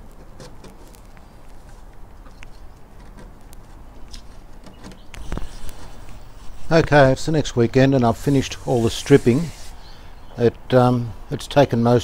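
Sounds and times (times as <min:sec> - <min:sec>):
scraping finish off wood: 0:05.2 - 0:09.9.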